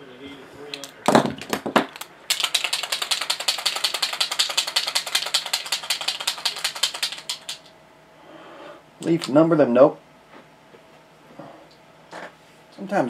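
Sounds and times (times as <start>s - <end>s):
rapid ratchet-like clicking: 2.3s - 7.7s.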